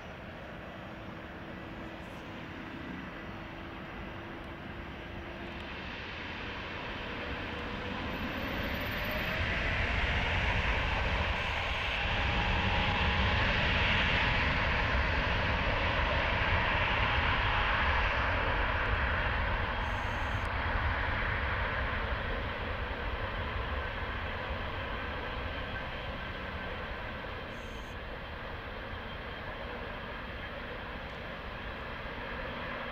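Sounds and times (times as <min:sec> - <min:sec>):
jet engine rumble: 0:00.0 - 0:32.9.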